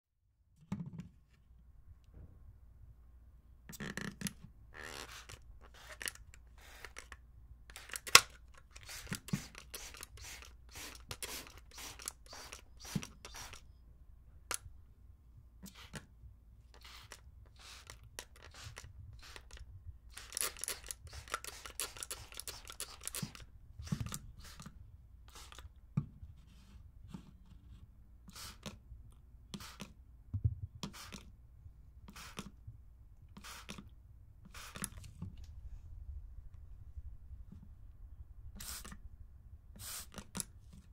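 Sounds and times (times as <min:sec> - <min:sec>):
spray bottle hissing: 0:04.8 - 0:07.1, 0:07.7 - 0:13.6, 0:16.8 - 0:24.7, 0:25.3 - 0:25.7, 0:28.3 - 0:28.8, 0:30.9 - 0:31.2, 0:32.1 - 0:32.5, 0:33.4 - 0:33.8, 0:34.5 - 0:35.0, 0:38.6 - 0:39.0, 0:39.8 - 0:40.3.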